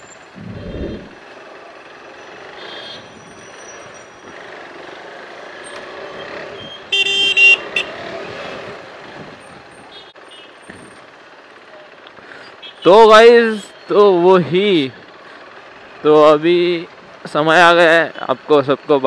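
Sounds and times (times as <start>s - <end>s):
road traffic engines: 0.0s - 19.0s
loud vehicle horn honking: 6.6s - 8.2s.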